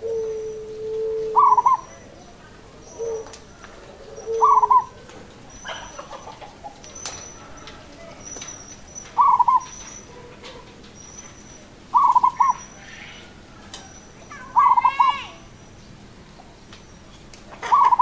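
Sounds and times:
dove cooing: 0.0s - 7.9s, 9.1s - 10.8s, 11.9s - 15.3s, 17.5s - 18.0s
small bird chirping: 4.2s - 10.3s, 11.0s - 18.0s.

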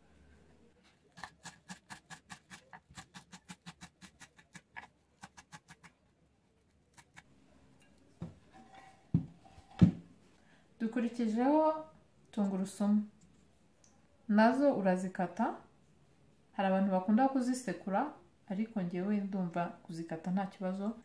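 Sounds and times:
heavier knife thuds: 9.1s - 10.0s.

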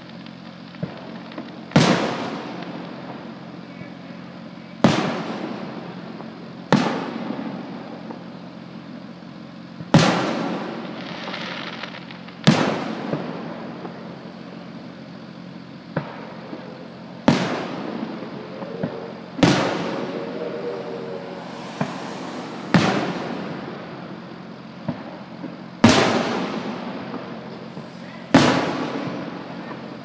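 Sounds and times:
small firework pops: 0.0s - 2.9s, 9.9s - 14.0s
firework shells booming: 15.9s - 29.6s.

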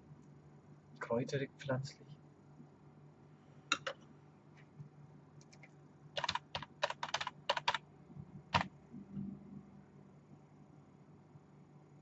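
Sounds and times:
keyboard typing: 3.7s - 4.0s, 5.4s - 7.8s, 8.5s - 8.7s.

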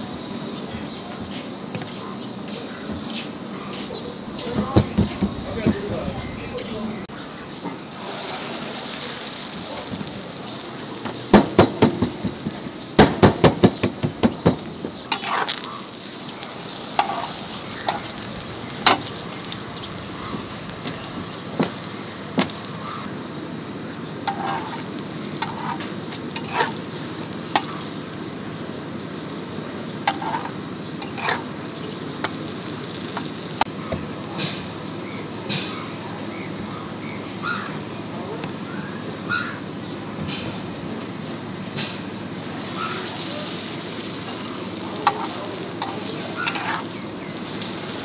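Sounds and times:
flatbread sizzling in oil: 7.9s - 33.7s, 42.3s - 48.0s
metal spatulas clacking on griddle: 13.0s - 16.0s, 24.3s - 26.8s, 30.1s - 31.4s, 45.0s - 46.8s.

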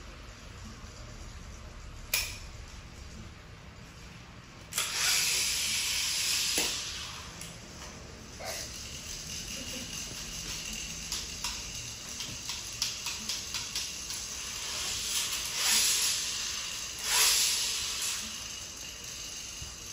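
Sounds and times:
spinning tops on wooden floor: 4.6s - 19.9s.

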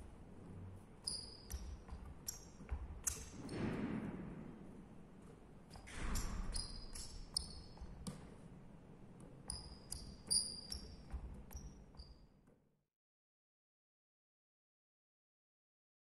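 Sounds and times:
sneaker squeaks: 0.0s - 12.5s
footsteps on sports hall floor: 0.0s - 12.6s.

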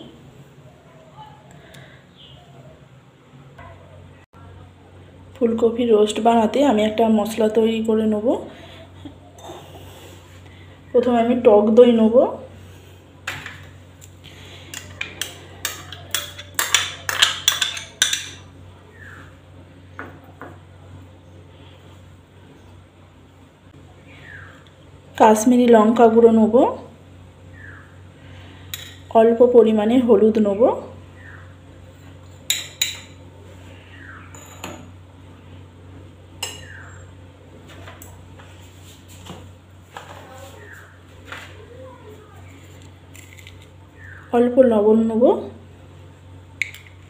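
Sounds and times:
steady low hum: 0.0s - 47.0s
metal spoon clinking against glass bowls: 14.7s - 18.4s, 36.4s - 36.8s.

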